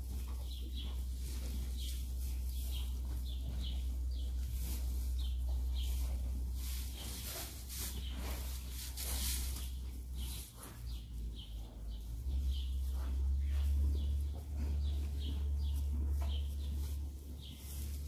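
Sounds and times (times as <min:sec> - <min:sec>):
small birds chirping: 0:00.0 - 0:18.0
steady low hum: 0:00.0 - 0:18.0
rustling in straw: 0:01.0 - 0:10.8.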